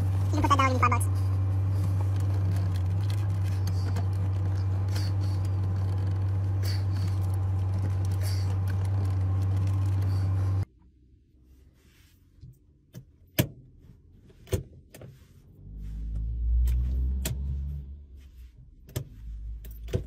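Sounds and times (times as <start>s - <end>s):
low hum inside a car: 0.0s - 20.0s
small clicks and scrapes: 1.7s - 10.7s.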